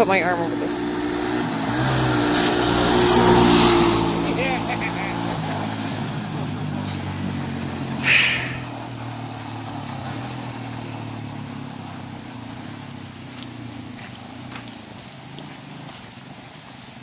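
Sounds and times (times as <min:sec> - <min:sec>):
atv engine running: 0:00.0 - 0:17.0
loud burst of noise: 0:08.0 - 0:08.7.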